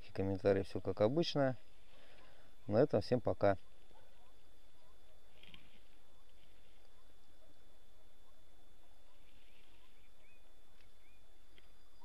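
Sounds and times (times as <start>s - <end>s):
bird chirps: 9.0s - 12.0s.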